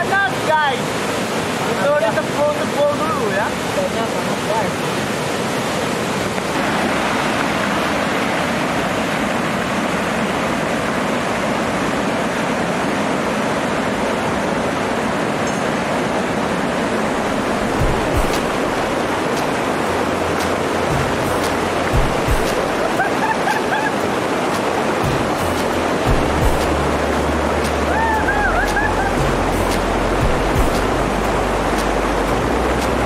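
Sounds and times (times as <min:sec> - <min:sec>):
waterfall rushing over rocks: 0:00.0 - 0:33.0
low thumps: 0:17.6 - 0:19.0, 0:20.9 - 0:22.8, 0:25.1 - 0:27.1, 0:29.2 - 0:31.1.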